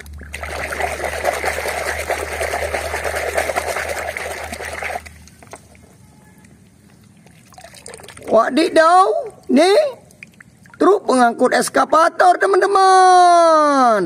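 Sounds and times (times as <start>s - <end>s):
hand scrubbing toy underwater: 0.1s - 5.3s.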